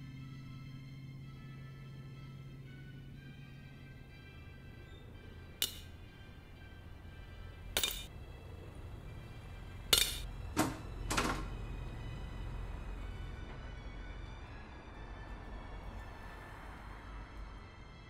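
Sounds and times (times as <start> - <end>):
soft background music: 0.0 - 18.0
nails clinking into tin can: 7.8 - 8.1, 10.0 - 10.2.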